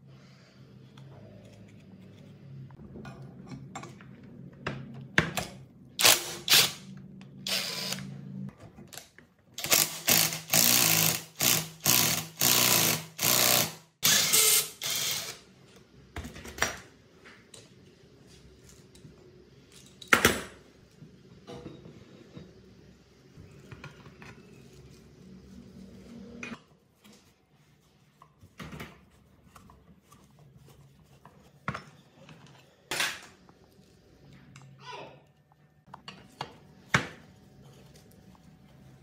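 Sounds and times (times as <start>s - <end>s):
power wrench bursts: 9.6s - 15.4s.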